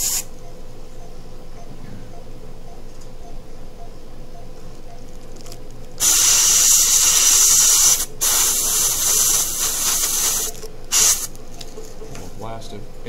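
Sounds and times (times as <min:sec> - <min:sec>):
dental air syringe hissing: 0:00.0 - 0:00.3, 0:06.0 - 0:11.4.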